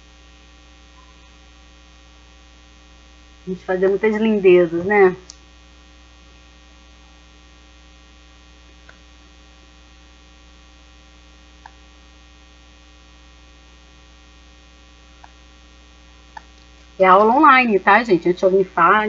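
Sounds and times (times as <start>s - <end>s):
electrical mains hum: 0.0s - 19.0s.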